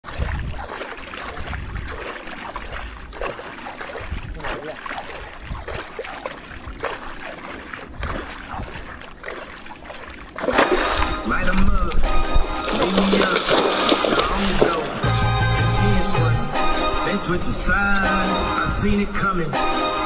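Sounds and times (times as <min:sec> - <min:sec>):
wind rumble on microphone: 0:00.0 - 0:09.1, 0:11.0 - 0:12.8, 0:14.4 - 0:19.4
fish splashing at surface: 0:00.0 - 0:15.1.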